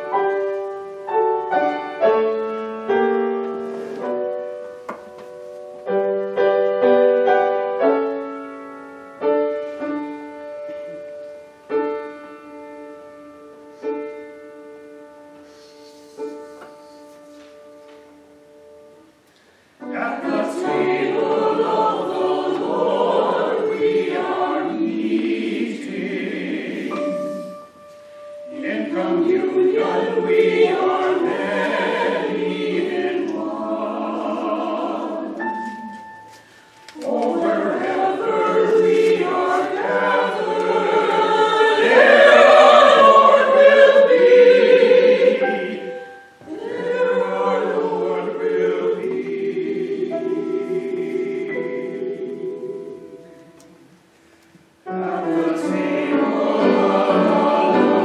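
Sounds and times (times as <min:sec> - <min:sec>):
mixed choir singing: 0:19.8 - 0:27.8, 0:28.4 - 0:36.3, 0:37.0 - 0:53.9, 0:54.8 - 0:58.0.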